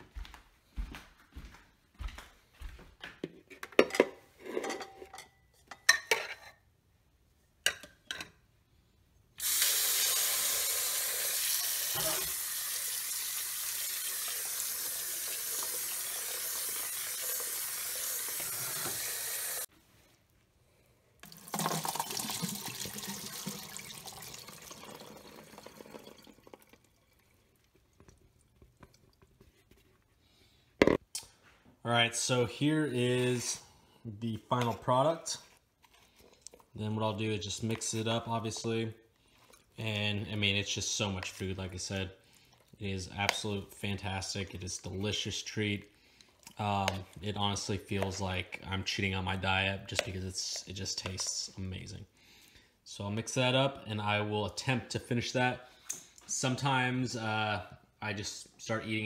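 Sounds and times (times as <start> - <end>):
faucet running into plastic bowl: 9.4 - 19.7, 21.2 - 27.3
water and berries pouring: 21.2 - 29.2.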